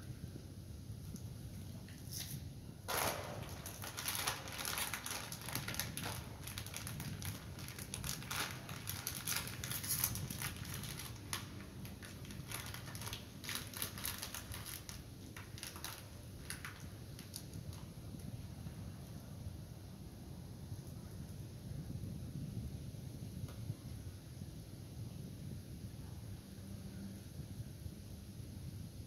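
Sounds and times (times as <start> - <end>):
plastic wrapper crinkling: 2.9 - 18.3.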